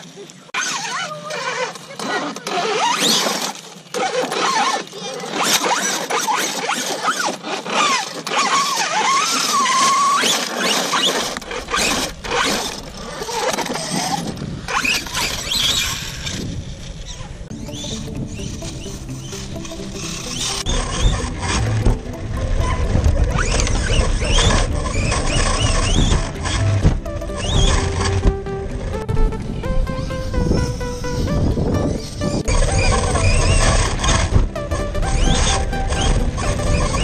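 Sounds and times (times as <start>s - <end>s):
electric motor whining: 0.6s - 37.0s
low rumble: 16.0s - 37.0s.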